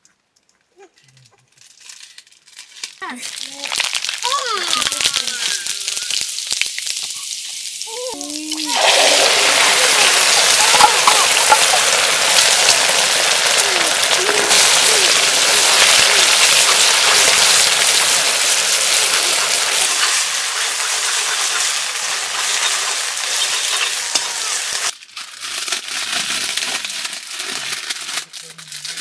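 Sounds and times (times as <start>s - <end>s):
packet being torn open: 1.5s - 9.0s, 24.9s - 29.0s
liquid sizzling in hot wok: 1.8s - 29.0s.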